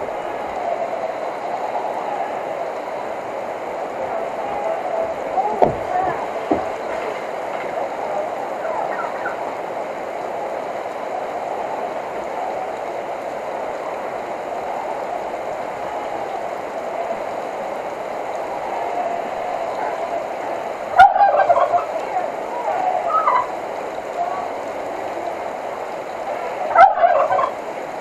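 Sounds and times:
rain pattering on car hood: 0:02.7 - 0:28.0
turkey gobbling: 0:08.6 - 0:09.4, 0:21.0 - 0:22.0, 0:22.7 - 0:23.5, 0:26.7 - 0:27.6.

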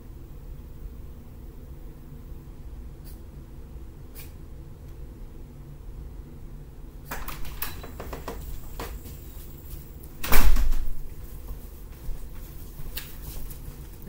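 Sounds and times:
door latch clicks: 0:07.1 - 0:08.4, 0:10.2 - 0:10.8
door slamming shut: 0:07.1 - 0:09.0, 0:10.2 - 0:11.0.

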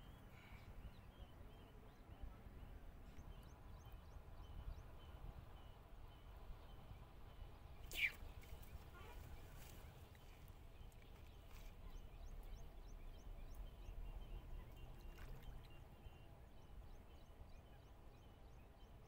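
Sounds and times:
low wind rumble on microphone: 0:00.0 - 0:19.0.

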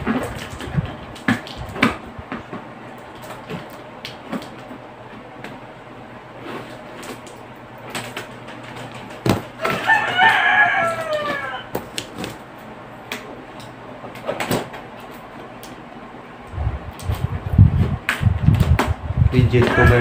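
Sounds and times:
packing tape clicks and rustles: 0:00.0 - 0:04.8, 0:06.6 - 0:12.4
rooster crowing: 0:09.6 - 0:11.8, 0:19.4 - 0:20.0.

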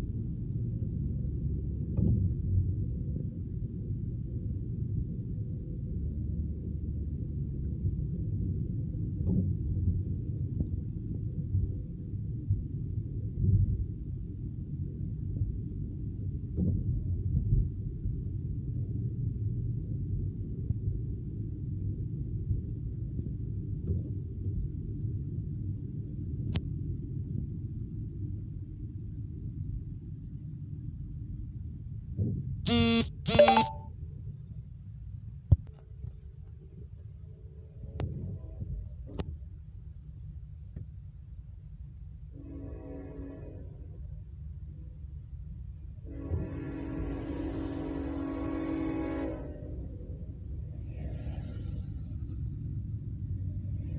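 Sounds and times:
car horn blasts: 0:32.7 - 0:33.9.

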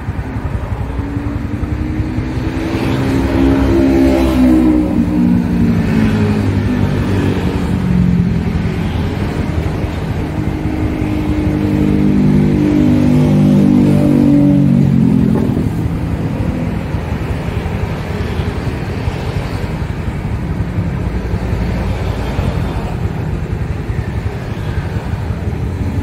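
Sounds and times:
engine revving: 0:00.0 - 0:20.4.

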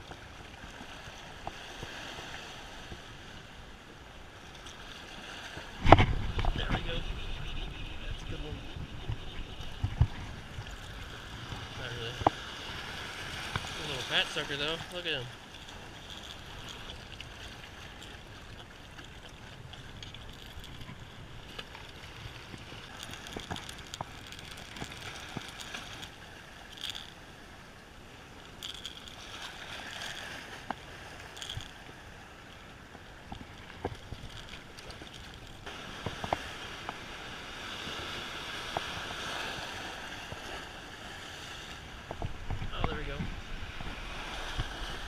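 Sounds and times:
waves breaking against rocks: 0:00.0 - 0:45.0
wind on microphone: 0:05.4 - 0:13.8, 0:33.2 - 0:45.0
fishing tackle clicks: 0:13.5 - 0:27.3, 0:28.4 - 0:32.0, 0:32.9 - 0:37.0.

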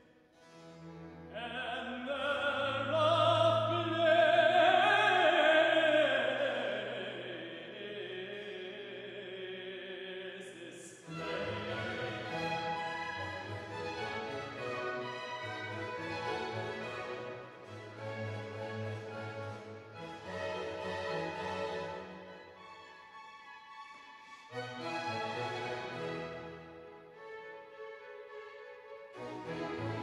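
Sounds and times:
string orchestra playing: 0:00.4 - 0:09.0, 0:11.0 - 0:30.0
tenor singing: 0:01.1 - 0:22.6.

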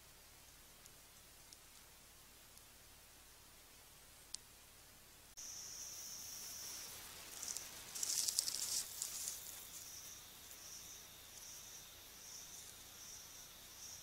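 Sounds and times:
high insect trill: 0:05.4 - 0:14.0
rustling in dry leaf litter: 0:06.5 - 0:10.6.

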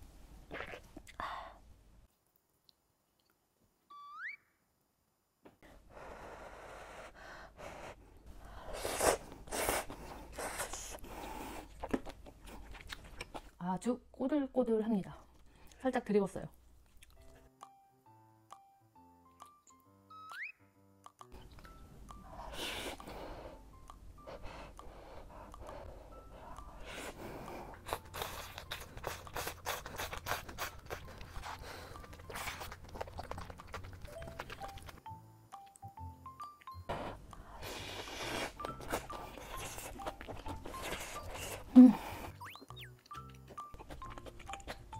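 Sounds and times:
person chewing noodles: 0:08.7 - 0:13.6, 0:16.8 - 0:17.5, 0:21.3 - 0:35.0, 0:36.6 - 0:44.9.

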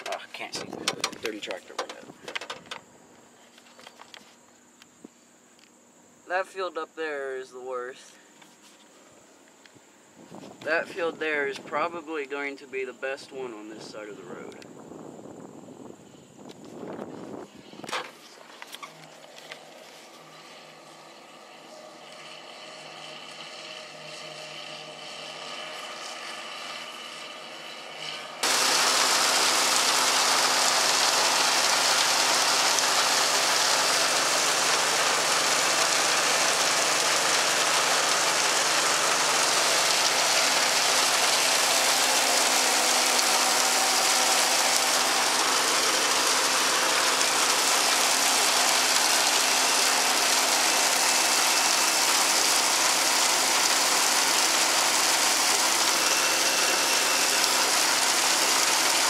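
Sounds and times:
forage harvester chopping corn: 0:00.0 - 0:02.9, 0:17.9 - 0:59.0
tractor engine: 0:00.0 - 0:04.5, 0:17.7 - 0:59.0
chopped silage pouring out: 0:28.4 - 0:59.0
forage wagon unloading rush: 0:28.4 - 0:59.0.

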